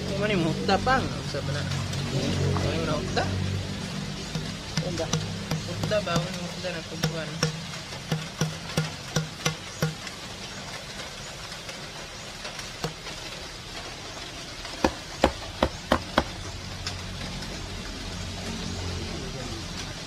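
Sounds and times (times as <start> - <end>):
hammer striking plastic tube: 4.3 - 10.1.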